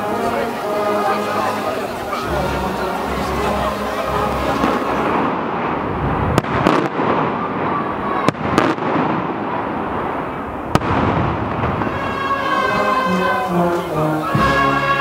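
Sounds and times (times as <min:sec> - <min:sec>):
steady rushing noise: 0:00.0 - 0:08.3
fireworks cracking: 0:00.0 - 0:15.0
flurry of firework pops: 0:06.3 - 0:07.4.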